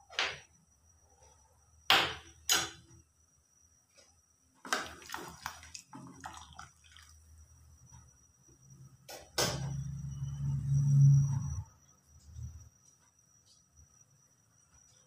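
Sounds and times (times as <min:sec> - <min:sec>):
soup sloshing and scraping: 0:04.7 - 0:07.3.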